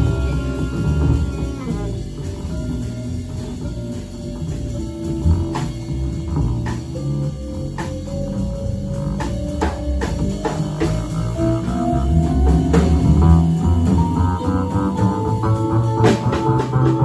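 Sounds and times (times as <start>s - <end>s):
saxophone long notes: 0.0s - 2.8s
double bass: 0.0s - 17.0s
drums: 0.0s - 17.0s.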